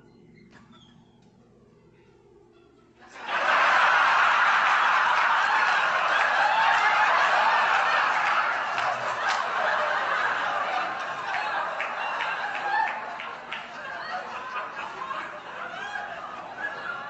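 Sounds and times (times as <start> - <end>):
audience laughing loudly: 3.0 - 17.0.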